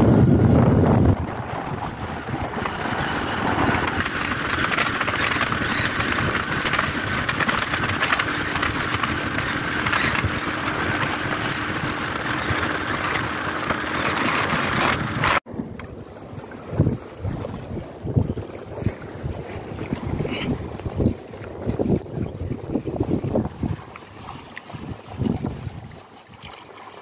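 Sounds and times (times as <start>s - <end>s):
motorcycle engine hum: 0.0s - 18.4s
wind and road noise: 0.0s - 26.4s.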